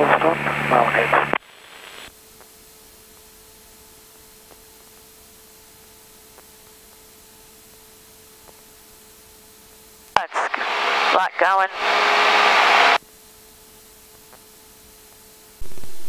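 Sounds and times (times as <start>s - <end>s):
steady tone: 10.2s - 13.0s
low electrical hum: 13.0s - 16.0s.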